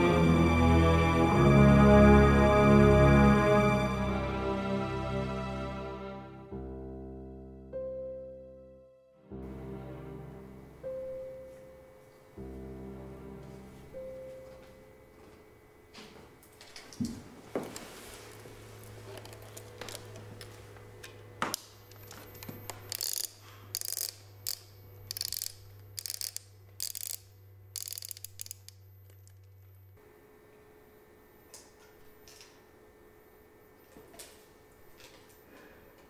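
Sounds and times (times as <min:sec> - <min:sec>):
camera winding knob ratcheting: 0:22.7 - 0:29.4.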